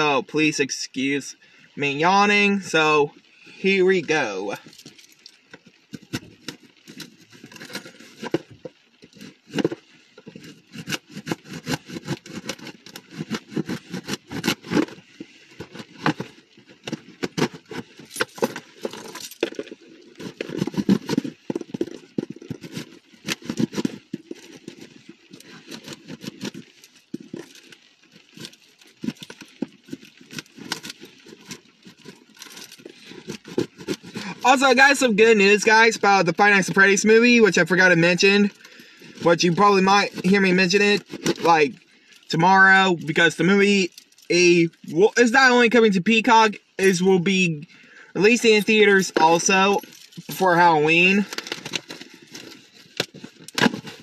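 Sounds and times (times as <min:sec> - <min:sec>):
rustling of box and wrapping: 0:04.6 - 0:34.8, 0:48.3 - 0:54.0.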